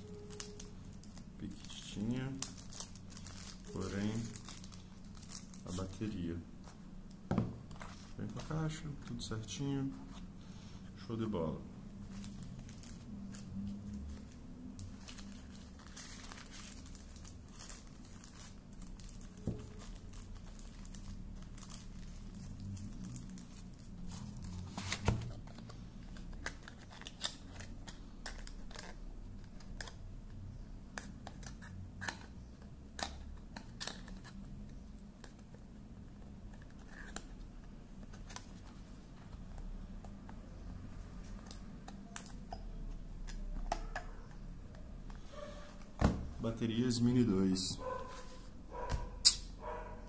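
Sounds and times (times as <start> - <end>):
plastic wrapping crinkling: 0.0 - 6.4, 12.0 - 30.0.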